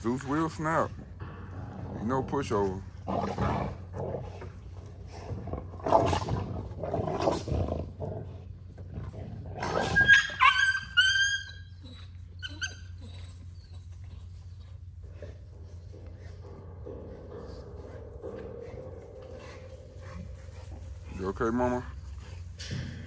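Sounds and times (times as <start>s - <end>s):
dog snarling and snapping: 5.3s - 8.0s
puppy yelping: 9.6s - 14.2s.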